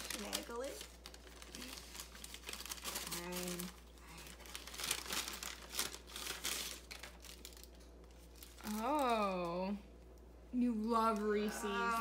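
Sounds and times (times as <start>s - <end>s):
paper bag crinkling: 0.0s - 9.5s.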